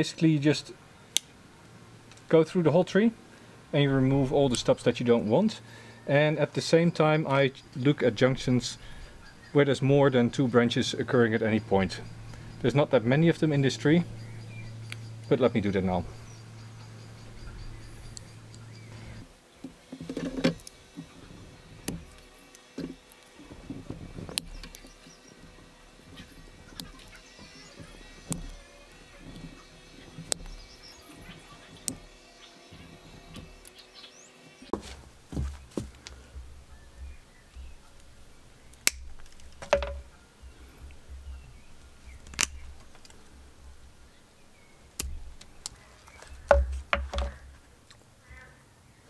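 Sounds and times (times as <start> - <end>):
cutters snipping branches: 34.8 - 48.1.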